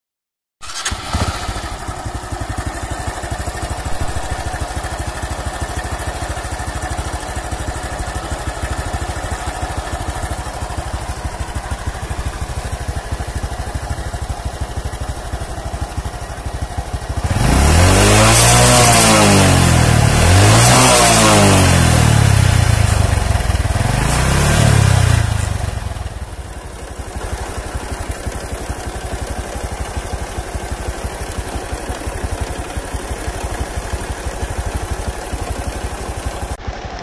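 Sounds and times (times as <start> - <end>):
motorcycle engine idling: 0.6 - 37.0
loud rising and falling sound: 3.7 - 5.0.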